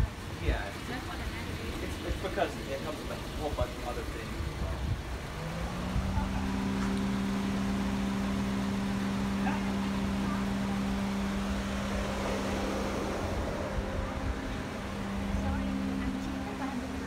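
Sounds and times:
car mechanical hum: 0.0s - 17.0s
low rumble: 4.1s - 17.0s.

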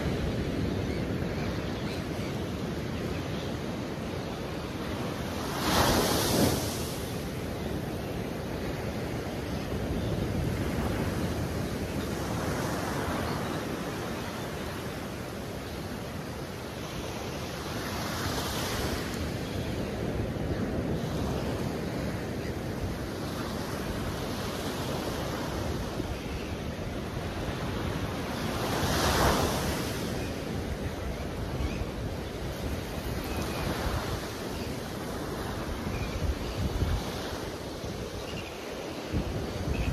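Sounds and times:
wind rumble on microphone: 17.9s - 39.9s.

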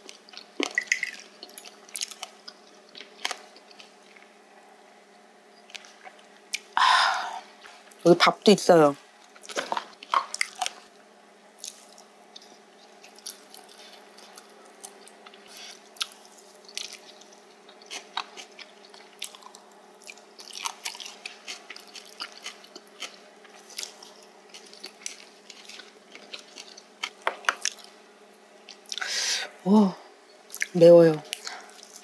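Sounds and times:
crisp chewing crunches: 0.0s - 4.3s, 9.2s - 10.9s, 11.6s - 28.0s, 30.5s - 32.0s
steady low hum: 0.0s - 32.0s.

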